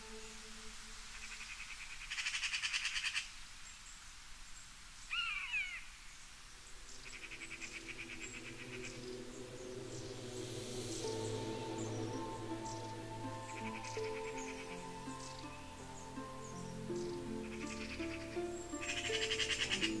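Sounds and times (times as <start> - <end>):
soft background music: 0.0 - 2.2, 6.9 - 20.0.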